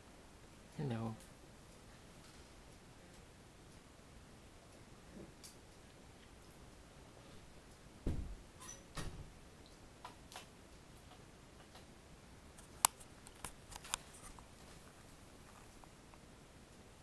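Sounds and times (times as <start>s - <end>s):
soft rustles: 12.6s - 16.2s.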